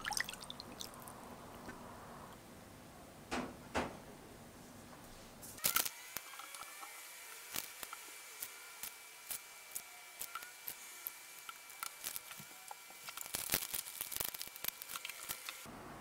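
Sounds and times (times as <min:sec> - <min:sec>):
plastic bag crinkling: 0:13.0 - 0:15.5.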